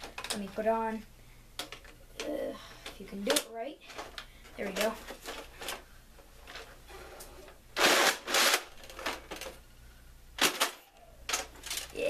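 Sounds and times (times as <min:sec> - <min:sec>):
plastic toy handling rustle: 0:01.6 - 0:09.6, 0:10.4 - 0:12.0.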